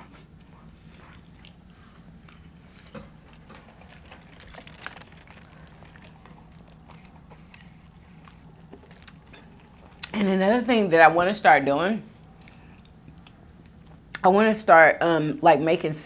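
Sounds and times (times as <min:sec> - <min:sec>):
low hum: 0:00.0 - 0:14.2
chewing and mouth clicks: 0:00.1 - 0:10.2, 0:12.2 - 0:14.2.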